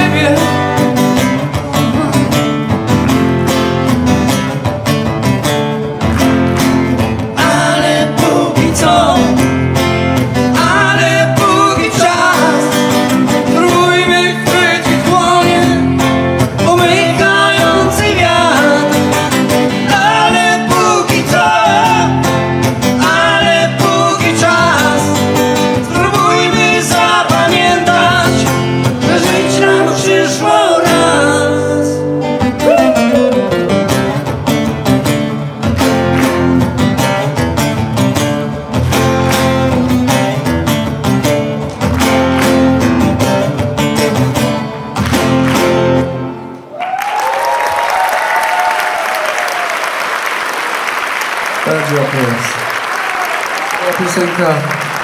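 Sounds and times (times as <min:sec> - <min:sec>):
man singing into a microphone: 0:00.0 - 0:00.9, 0:07.4 - 0:09.4, 0:10.4 - 0:22.4, 0:23.0 - 0:33.5
strummed acoustic guitar: 0:00.0 - 0:46.6.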